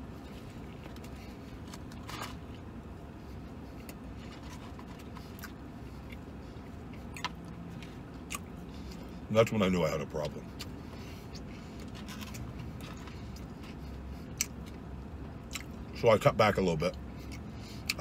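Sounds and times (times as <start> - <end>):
man chewing: 0.0 - 9.3, 10.4 - 16.0, 17.1 - 18.0
vehicle cab hum: 0.0 - 18.0.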